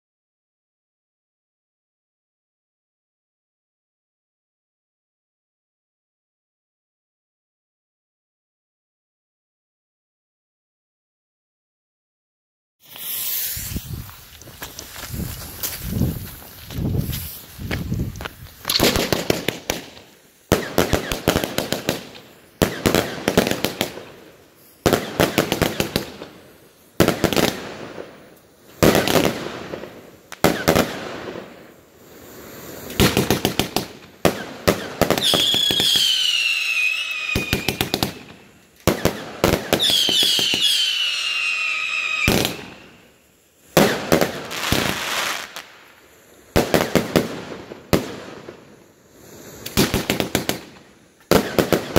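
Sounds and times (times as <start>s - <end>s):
falling firework whistles: 12.8s - 51.9s
firework shots and crackling bangs: 12.8s - 51.9s.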